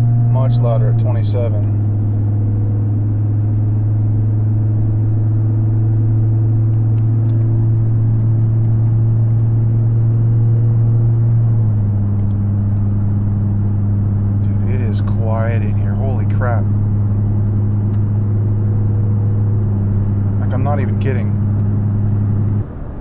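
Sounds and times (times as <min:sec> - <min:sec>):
low exhaust drone: 0:00.0 - 0:23.0.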